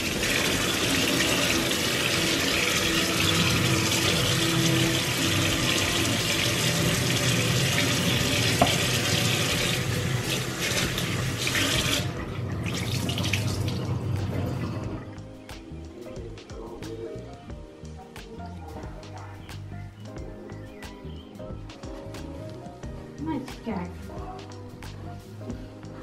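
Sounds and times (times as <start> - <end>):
tap water splashing into sink: 0.0 - 14.6.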